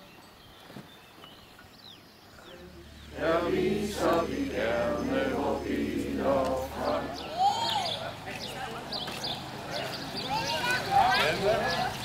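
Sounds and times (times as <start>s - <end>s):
group of people singing: 3.0s - 7.4s.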